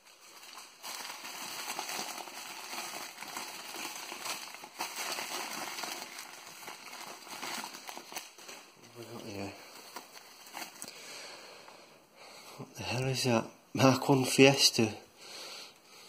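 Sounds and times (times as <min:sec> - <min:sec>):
newspaper rustling and crackling: 0:00.0 - 0:11.0.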